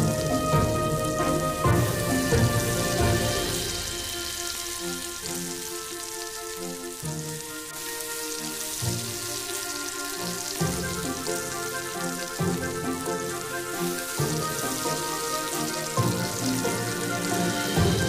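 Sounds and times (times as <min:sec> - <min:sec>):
background music with held notes: 0:00.0 - 0:18.0
fritters sizzling in hot oil: 0:00.0 - 0:18.0.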